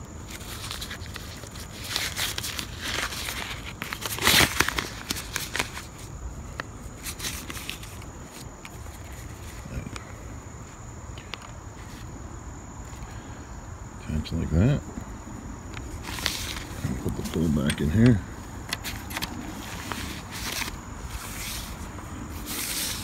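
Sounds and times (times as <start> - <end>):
nylon netting rustling: 0.3 - 6.1, 15.8 - 17.5, 18.7 - 23.0.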